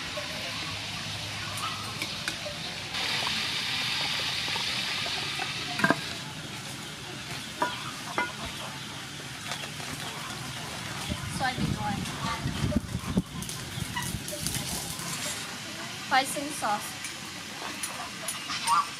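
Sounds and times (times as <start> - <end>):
meat sizzling in hot oil: 0.7 - 8.4
utensil clinking against metal pot: 5.4 - 6.2, 7.6 - 8.4.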